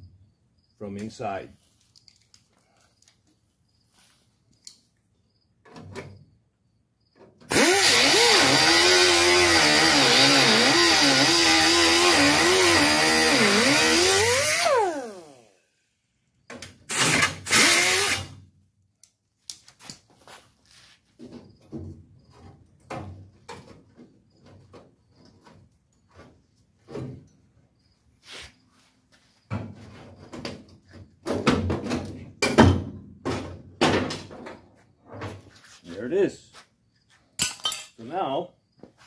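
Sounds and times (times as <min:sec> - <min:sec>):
grinder cutting sheet metal: 0:07.5 - 0:15.4, 0:16.9 - 0:18.3.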